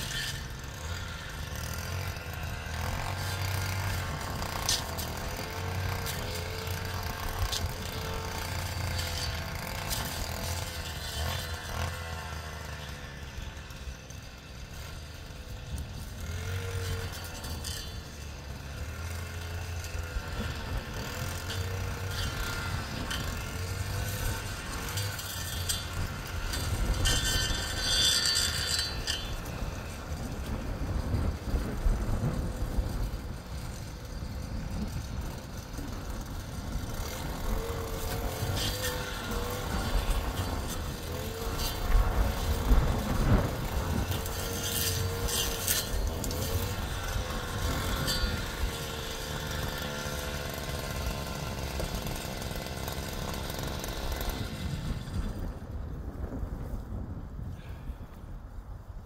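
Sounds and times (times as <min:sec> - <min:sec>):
machinery clicks and rattles: 0:00.0 - 0:55.6
engine running: 0:00.0 - 0:59.0.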